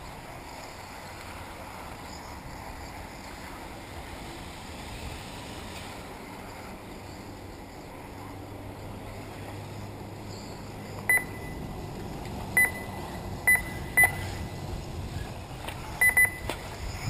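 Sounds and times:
short high electronic beeps: 11.1s - 11.6s, 12.6s - 14.3s, 16.0s - 16.5s.

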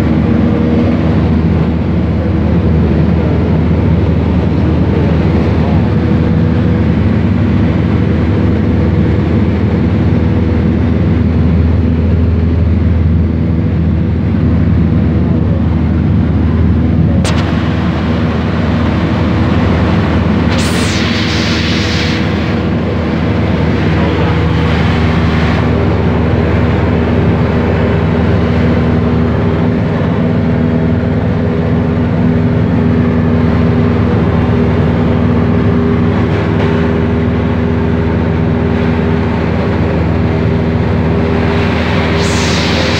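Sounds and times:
light aircraft engine droning: 0.0s - 42.9s
sharp click: 17.2s - 17.6s
short burst of hiss: 20.5s - 22.6s, 42.1s - 42.9s.

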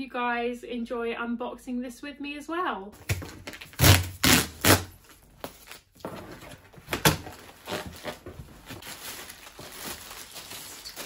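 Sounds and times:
cardboard and plastic packing rustling: 4.9s - 11.0s.

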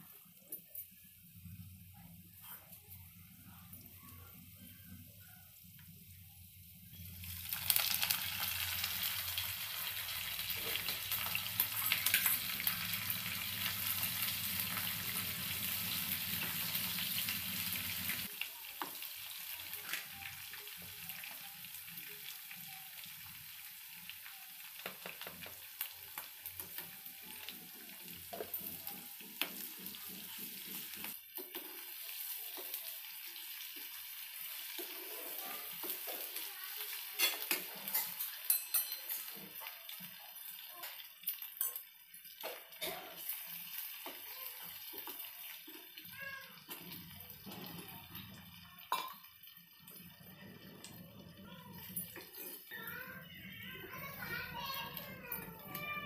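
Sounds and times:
onions sizzling in hot oil: 5.5s - 56.0s
spoon clicking and scraping pan: 37.2s - 39.4s.

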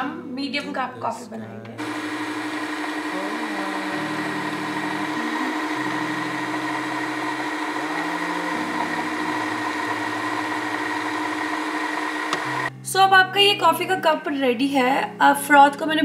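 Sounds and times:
coffee machine humming: 1.8s - 12.7s.

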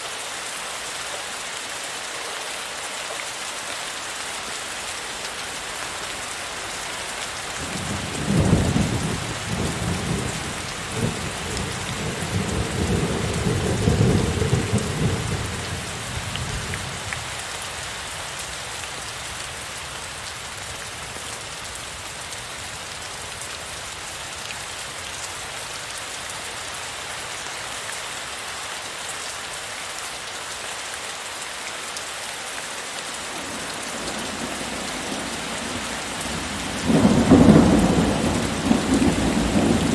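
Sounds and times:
heavy rain falling: 0.0s - 39.9s
thunder rumbling: 36.2s - 39.9s.

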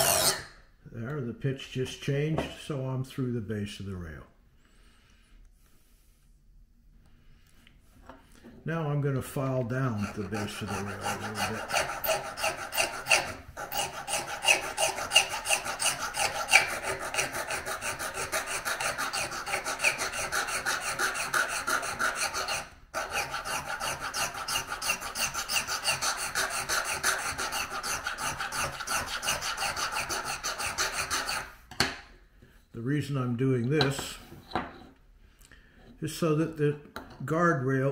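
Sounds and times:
needle file rasping on metal: 9.8s - 31.6s.

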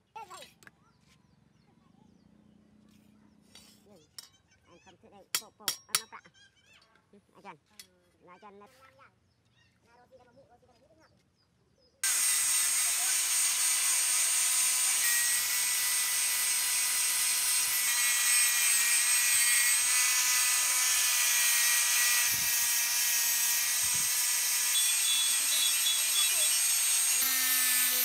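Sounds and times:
angle grinder grinding steel: 12.0s - 28.0s.

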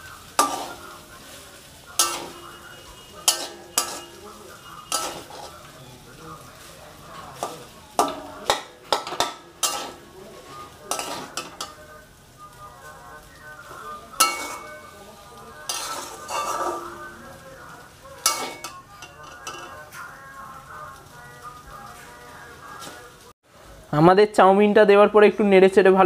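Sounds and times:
metal spatula scraping wok: 0.0s - 12.0s, 13.6s - 20.3s
food sizzling: 0.0s - 26.0s.

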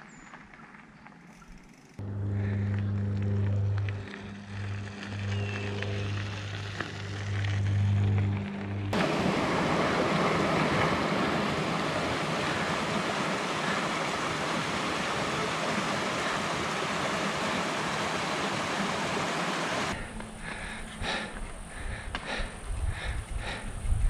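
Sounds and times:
rushing water: 9.0s - 20.0s.

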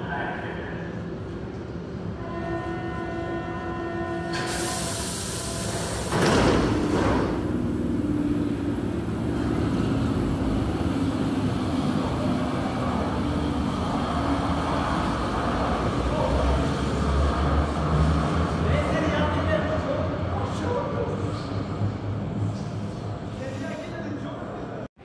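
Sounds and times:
train rushing and rumbling: 0.0s - 24.7s
train hum: 0.0s - 24.8s
train hiss: 4.3s - 6.3s.

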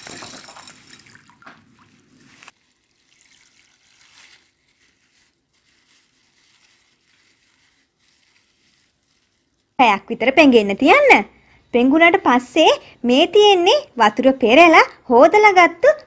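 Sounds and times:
lentils pouring into water: 0.0s - 9.8s
plastic bag crinkling: 0.0s - 9.8s.

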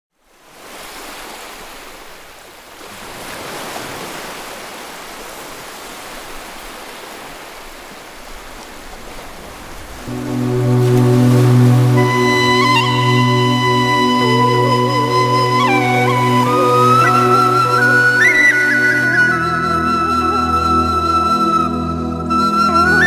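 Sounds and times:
waves breaking: 0.2s - 21.9s
music with low sustained notes: 10.1s - 23.0s.

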